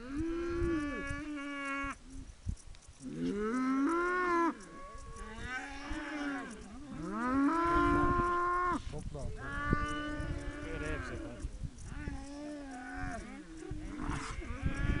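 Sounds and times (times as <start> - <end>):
cattle mooing: 3.1 - 8.8, 9.4 - 15.0.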